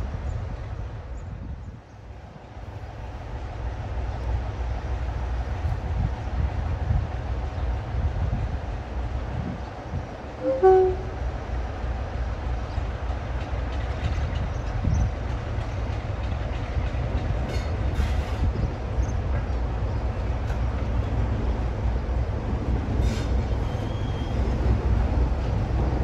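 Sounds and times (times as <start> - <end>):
diesel locomotive rumbling: 0.0 - 26.0.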